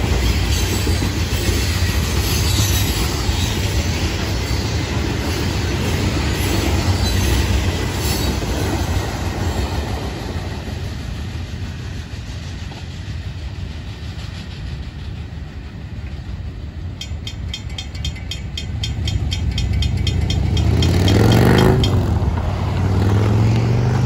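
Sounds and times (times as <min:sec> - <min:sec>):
railroad crossing bells ringing: 0:16.6 - 0:23.7
vehicles driving over crossing: 0:18.4 - 0:24.0.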